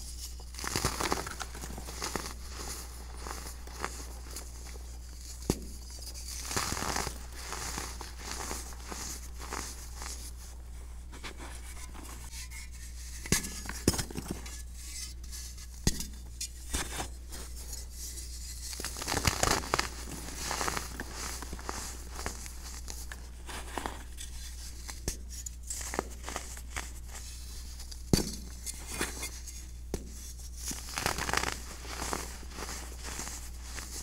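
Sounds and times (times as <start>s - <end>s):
baking soda crunching: 0.0s - 10.6s, 18.3s - 29.4s, 30.4s - 34.0s
steady low hum: 0.0s - 34.0s.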